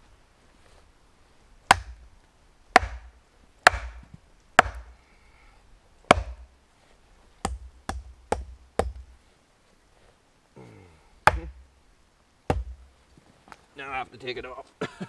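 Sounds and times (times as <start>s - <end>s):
heavy wooden chops: 1.7s - 2.0s, 2.7s - 5.0s, 6.1s - 6.5s, 7.4s - 9.1s, 11.2s - 11.7s, 12.5s - 12.9s.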